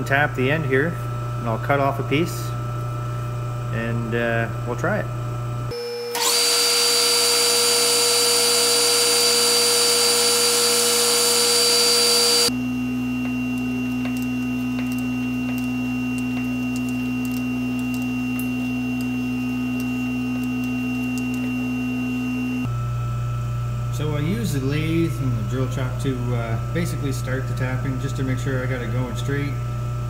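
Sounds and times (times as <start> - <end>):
steady hum: 0.0 - 6.8, 7.8 - 30.0
metal lathe whining: 5.8 - 22.7.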